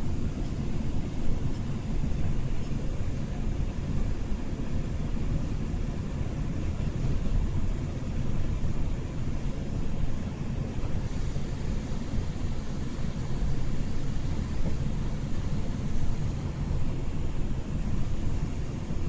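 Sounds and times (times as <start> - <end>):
subway train rumbling: 0.0 - 19.0.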